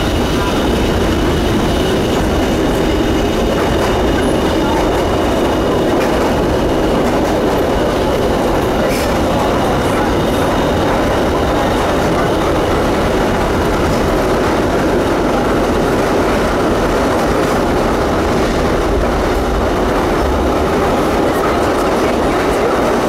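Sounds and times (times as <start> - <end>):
subway train rumbling in tunnel: 0.0 - 23.0.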